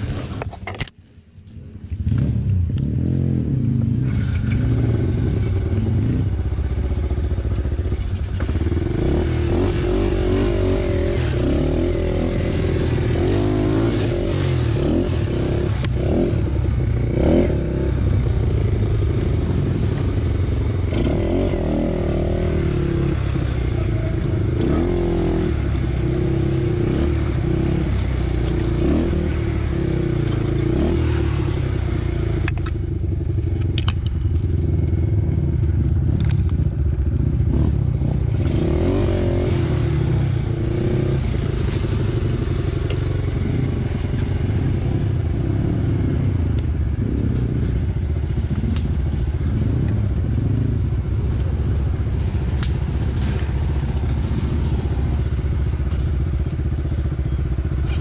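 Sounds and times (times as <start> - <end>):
dirt bike engine revving: 2.0 - 32.6, 37.2 - 58.0
clatter: 4.0 - 9.0, 33.5 - 37.2, 51.4 - 58.0.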